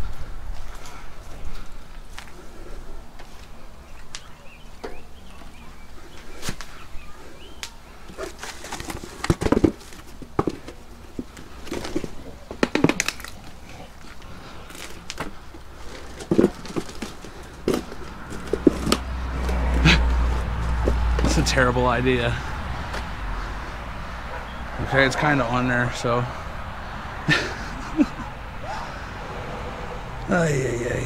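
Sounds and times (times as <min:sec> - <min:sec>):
mini bike knocks and clunks: 0:08.1 - 0:13.2, 0:15.2 - 0:21.6.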